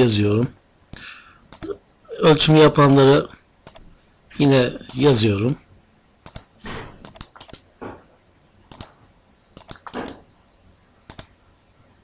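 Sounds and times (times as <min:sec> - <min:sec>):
mouse and keyboard clicks: 0:03.0 - 0:03.8, 0:06.2 - 0:07.7, 0:08.7 - 0:09.0, 0:09.6 - 0:10.2, 0:11.1 - 0:11.4.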